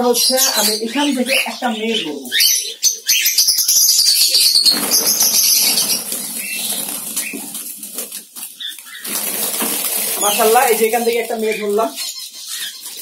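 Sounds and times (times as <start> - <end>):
doves flapping wings in cage: 4.6 - 12.0.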